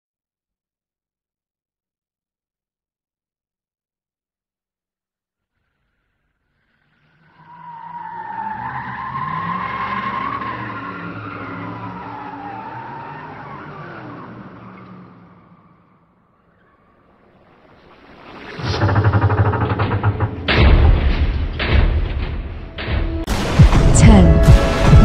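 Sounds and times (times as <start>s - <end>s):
car engine revving: 5.6s - 17.6s, 18.4s - 25.0s.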